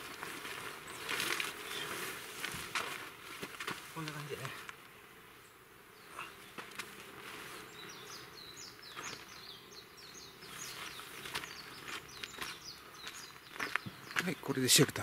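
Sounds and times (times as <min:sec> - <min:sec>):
footsteps on gravel: 0:00.0 - 0:04.6, 0:10.5 - 0:15.0
tarp fabric rustling: 0:00.0 - 0:04.6
small bird twittering: 0:07.6 - 0:14.6.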